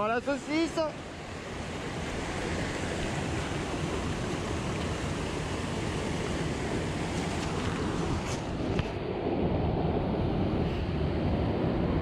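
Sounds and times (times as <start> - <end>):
river water rushing: 0.0 - 9.1.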